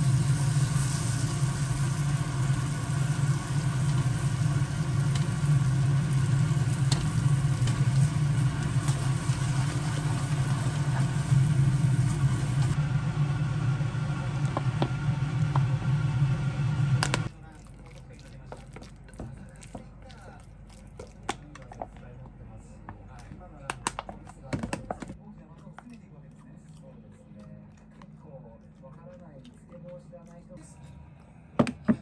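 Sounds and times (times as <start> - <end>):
food sizzling in a frying pan: 0.0 - 17.3
steady low hum: 0.0 - 17.5.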